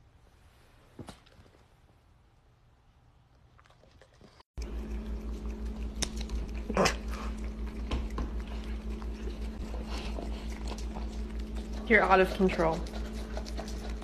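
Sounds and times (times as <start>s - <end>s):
animals lapping and smacking: 3.3s - 14.0s
low hum: 4.6s - 14.0s.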